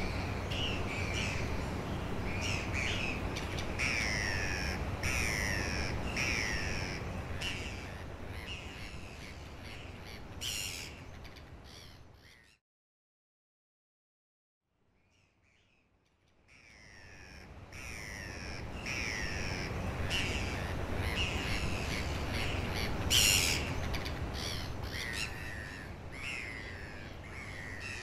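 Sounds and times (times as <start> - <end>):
sea rushing: 0.0 - 10.4, 17.2 - 28.0
gulls calling: 0.0 - 11.0, 16.6 - 28.0.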